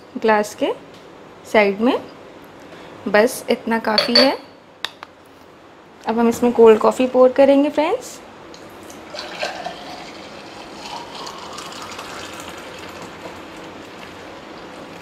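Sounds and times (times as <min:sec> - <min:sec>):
coffee pouring into a glass: 0:08.9 - 0:14.0.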